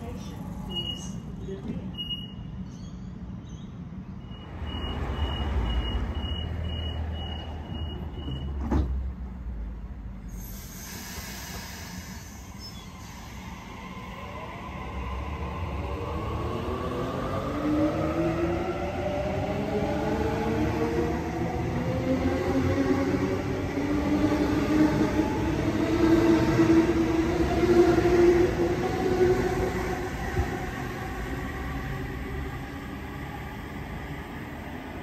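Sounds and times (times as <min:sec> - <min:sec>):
train doors shutting: 0:04.2 - 0:09.2
air hiss: 0:10.4 - 0:13.4.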